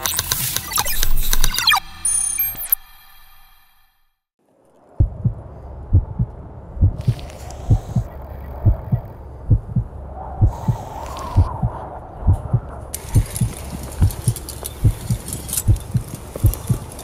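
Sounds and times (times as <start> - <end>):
heartbeat thumps: 5.0 - 16.9
high crackling rustle: 12.9 - 17.0.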